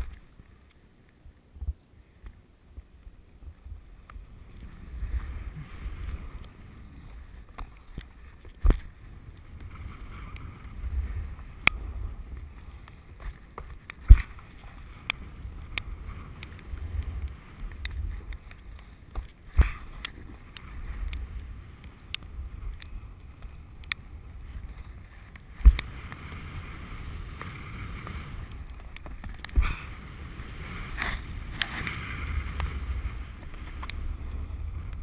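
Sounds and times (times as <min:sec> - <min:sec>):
wind buffeting microphone: 0:02.7 - 0:35.0
skis sliding on snow: 0:04.2 - 0:35.0.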